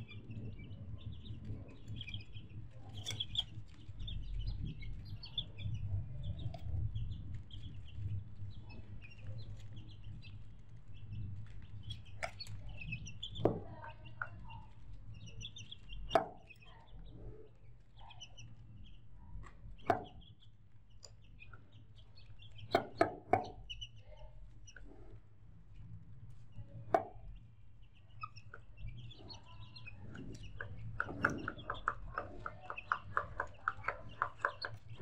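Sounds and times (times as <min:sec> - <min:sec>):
chickens clucking: 0:00.0 - 0:18.6, 0:26.8 - 0:35.0.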